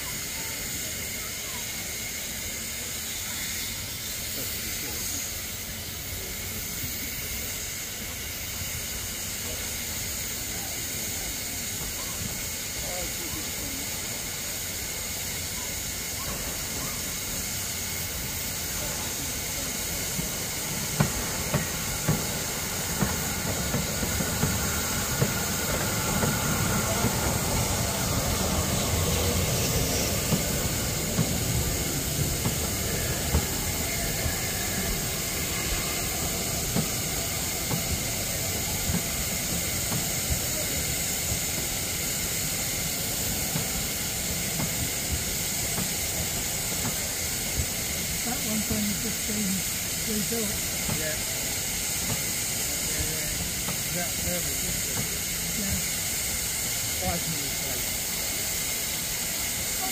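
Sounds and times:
steam hissing: 0.0 - 59.9
train wheels clicking over rail joints: 14.0 - 59.9.

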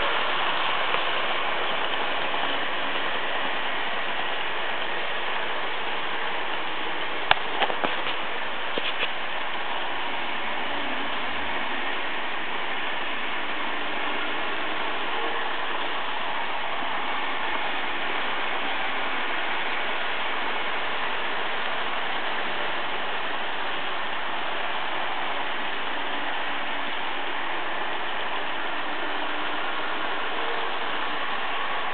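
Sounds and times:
model trains whirring on track: 0.0 - 31.9.

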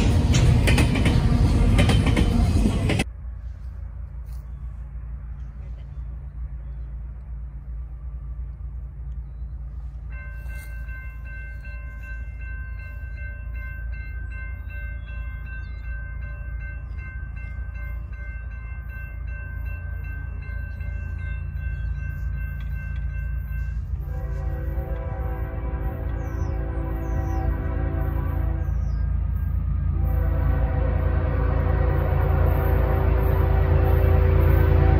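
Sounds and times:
crossing warning bell ringing: 9.8 - 34.9.

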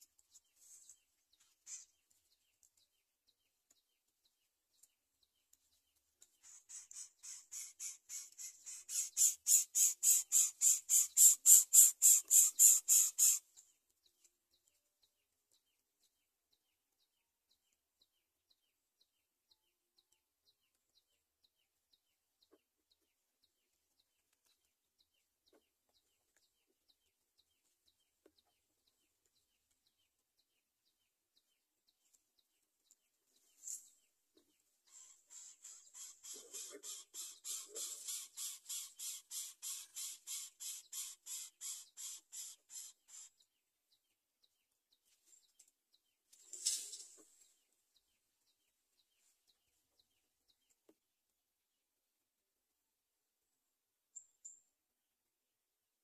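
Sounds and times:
nestlings high-pitched begging chirps: 6.4 - 13.4, 34.9 - 43.4.

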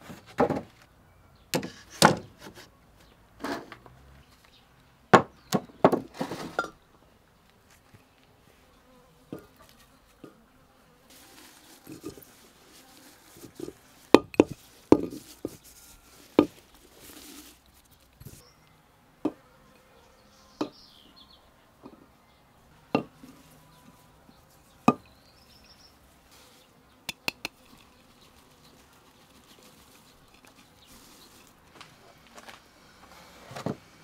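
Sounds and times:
petals rustling: 11.1 - 18.5, 23.1 - 26.8, 27.6 - 33.7
glass jar knocking on clay pot: 13.6 - 15.3, 22.9 - 23.2.

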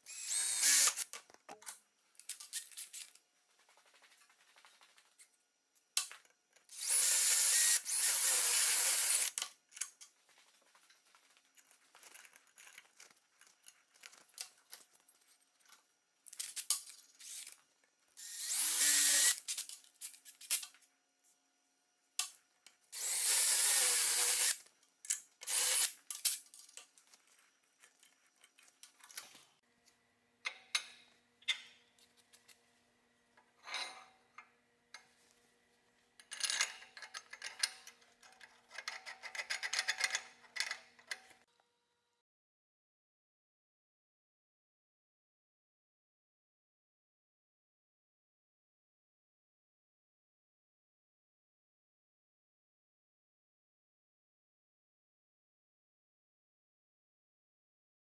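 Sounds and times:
small metal parts clicking and rattling: 11.5 - 15.0, 36.2 - 41.4.

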